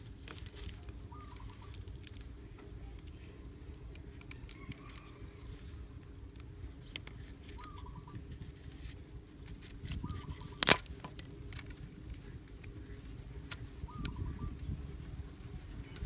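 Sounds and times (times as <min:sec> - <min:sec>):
rubber band clicks and rustles: 0:00.0 - 0:05.2, 0:06.2 - 0:13.6
birds chirping: 0:00.0 - 0:06.1, 0:06.7 - 0:16.0.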